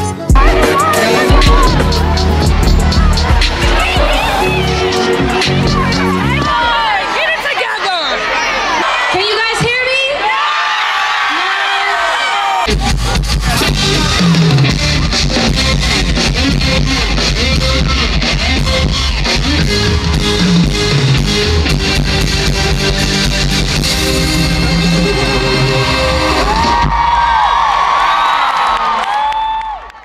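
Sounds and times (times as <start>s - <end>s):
drum kit beating: 0.0s - 6.9s, 12.7s - 28.0s
live band playing: 0.0s - 7.3s, 12.7s - 27.1s.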